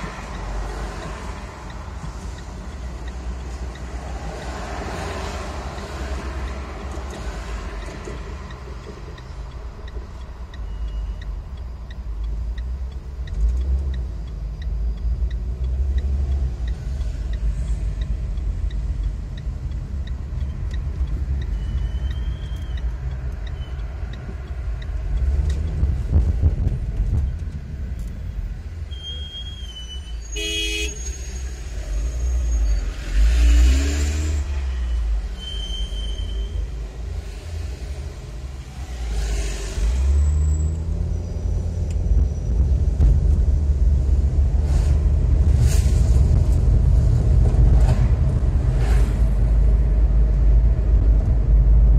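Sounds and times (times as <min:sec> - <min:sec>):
car engine and road rumble: 0:00.0 - 0:51.9
turn signal ticking: 0:00.0 - 0:51.9
car horn toot: 0:28.9 - 0:31.3.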